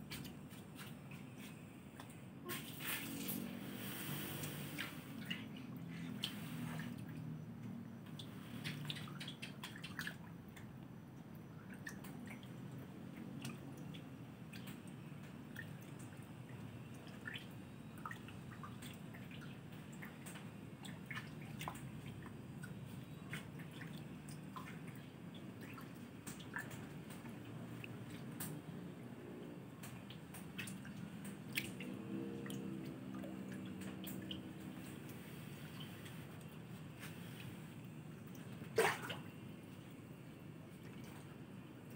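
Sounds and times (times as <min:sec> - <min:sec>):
fish splashing at water surface: 0:13.3 - 0:39.6.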